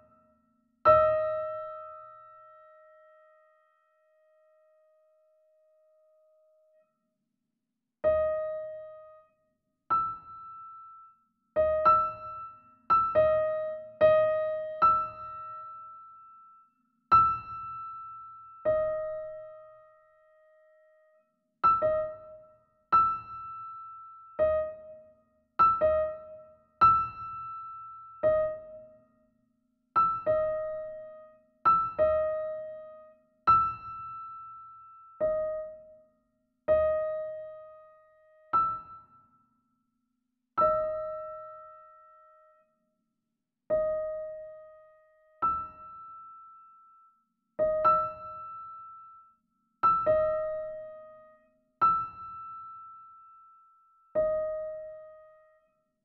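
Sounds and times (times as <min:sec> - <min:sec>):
piano notes: 0:40.6 - 0:42.1, 0:47.6 - 0:49.0, 0:49.8 - 0:53.0, 0:54.2 - 0:55.4.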